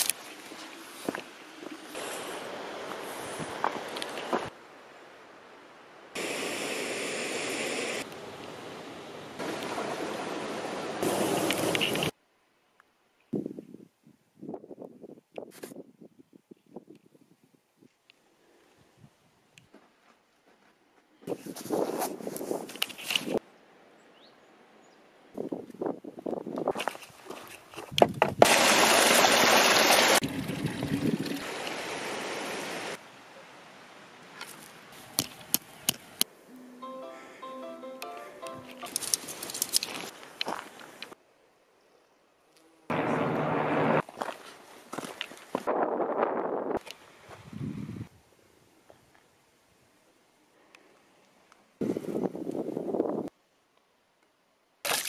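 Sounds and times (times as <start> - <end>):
mountain stream rushing: 0.0 - 12.1, 28.4 - 35.2.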